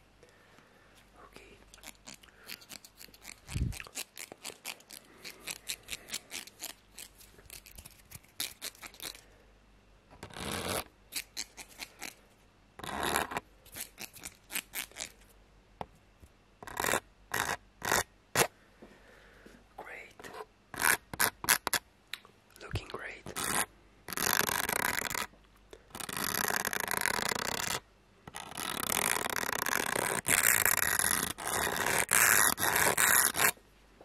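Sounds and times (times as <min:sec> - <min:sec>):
comb scraping: 0:01.7 - 0:09.2, 0:10.2 - 0:12.2, 0:26.0 - 0:33.6.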